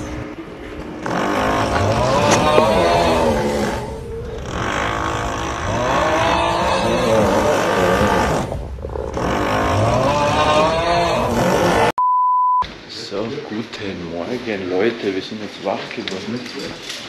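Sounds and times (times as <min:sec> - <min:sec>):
loud snoring: 0:01.0 - 0:11.9.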